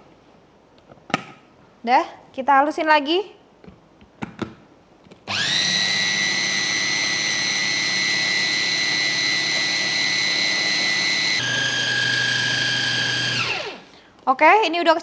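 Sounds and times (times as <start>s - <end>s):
food processor motor whining: 5.3s - 14.0s.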